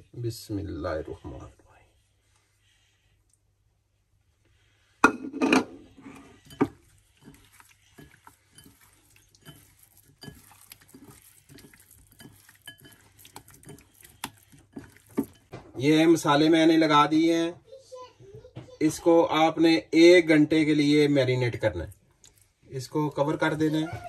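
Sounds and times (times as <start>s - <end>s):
dishes clattering on glass bowl: 5.0s - 15.7s.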